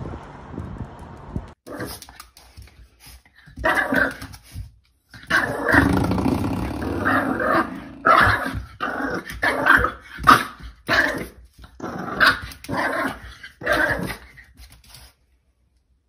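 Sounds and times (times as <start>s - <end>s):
dog growling and barking: 1.7s - 2.0s, 3.6s - 4.3s, 5.2s - 14.4s.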